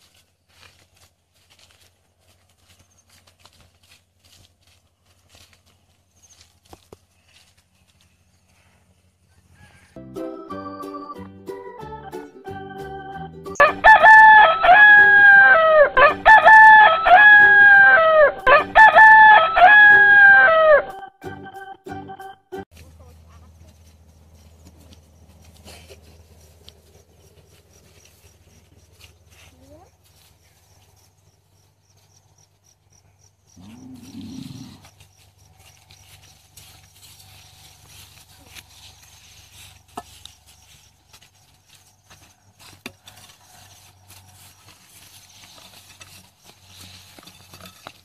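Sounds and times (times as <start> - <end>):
rooster crowing: 9.3 - 10.0, 13.6 - 21.0, 42.9 - 44.4
low animal call: 33.6 - 34.9.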